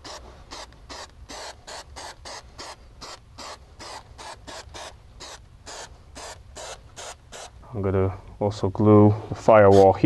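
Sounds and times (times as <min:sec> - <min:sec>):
aerosol can hissing in bursts: 0:00.0 - 0:07.6.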